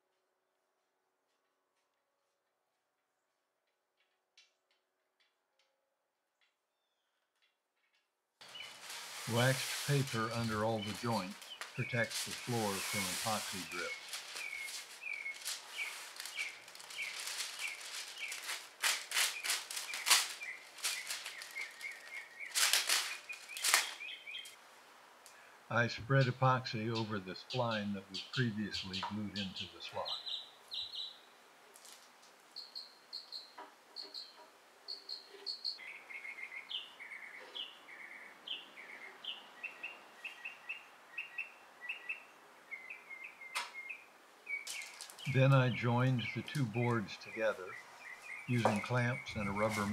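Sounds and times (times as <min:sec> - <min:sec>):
bird chirping: 0:06.4 - 0:24.6, 0:26.0 - 0:31.4, 0:32.5 - 0:49.9
waxed paper rustling and tearing: 0:08.4 - 0:24.6, 0:44.6 - 0:45.4, 0:48.5 - 0:49.9.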